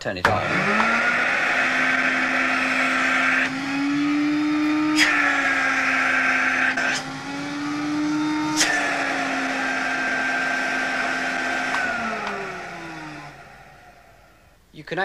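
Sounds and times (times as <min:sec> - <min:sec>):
vacuum cleaner motor running: 0:00.3 - 0:14.4
vacuum cleaner click: 0:04.6 - 0:13.6.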